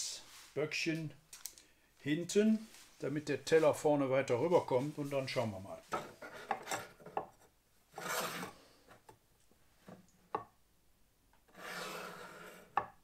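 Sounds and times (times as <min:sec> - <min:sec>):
wood scraping against wood: 0:05.8 - 0:09.1, 0:11.5 - 0:13.0.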